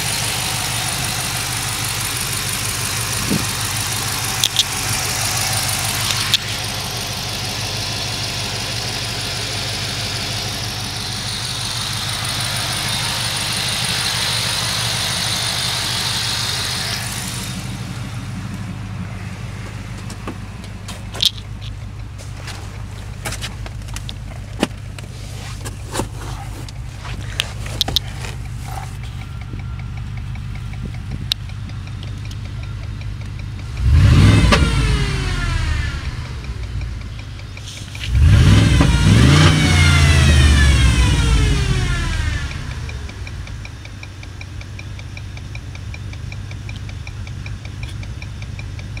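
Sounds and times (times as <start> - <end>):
rapid high-pitched ticking: 0.0 - 18.2, 27.6 - 38.4, 42.4 - 49.0
engine idling low hum: 0.0 - 49.0
sharp clicks: 0.1 - 18.6, 23.1 - 49.0.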